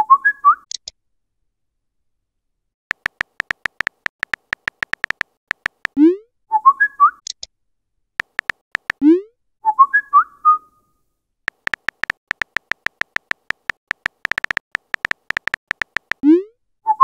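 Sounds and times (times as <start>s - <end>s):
keyboard tap clicks: 2.9s - 6.0s, 8.2s - 9.0s, 11.5s - 16.2s.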